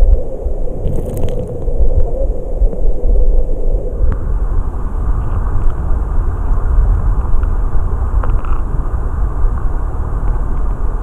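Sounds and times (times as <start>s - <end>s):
underwater stream rumble: 0.0s - 11.0s.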